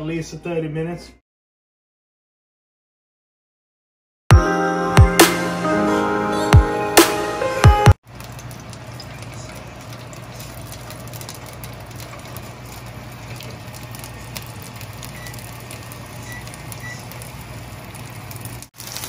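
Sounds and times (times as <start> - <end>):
vegetables sizzling in oil: 8.0 - 19.0.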